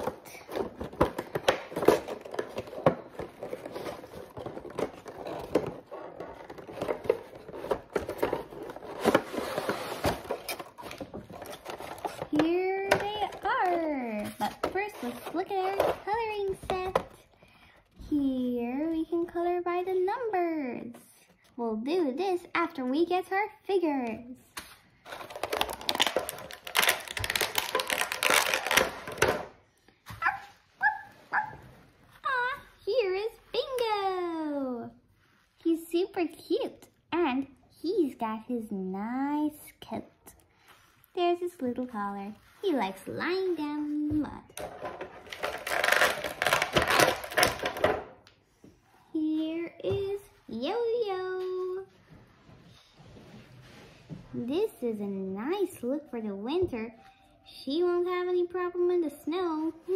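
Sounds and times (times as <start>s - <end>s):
plastic crinkling: 25.0s - 29.2s, 45.1s - 47.8s
short high yelps: 30.2s - 31.6s.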